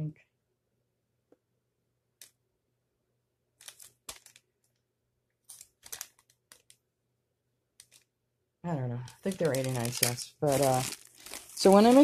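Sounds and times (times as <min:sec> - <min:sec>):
plastic bag crinkling: 0:03.6 - 0:04.5, 0:05.5 - 0:06.8, 0:07.8 - 0:08.1, 0:09.0 - 0:12.0.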